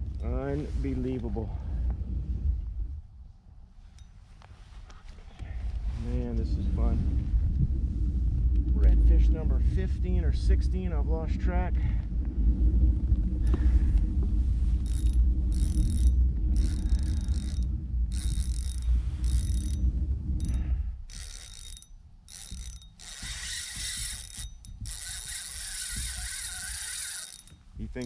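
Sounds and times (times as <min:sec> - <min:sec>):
low rumble: 0:00.0 - 0:28.0
fishing reel drag ticking: 0:14.8 - 0:28.0.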